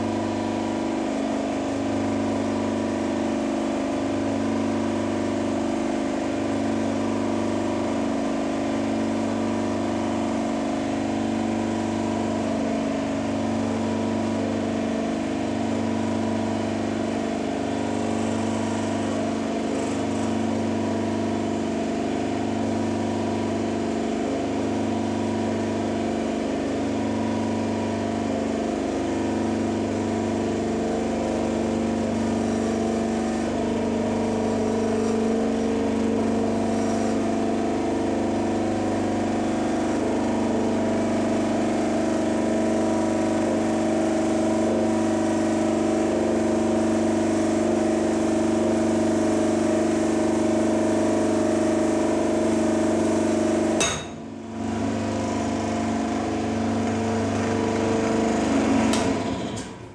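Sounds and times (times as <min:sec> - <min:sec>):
hydraulic pump and motor running: 0:00.0 - 0:59.9.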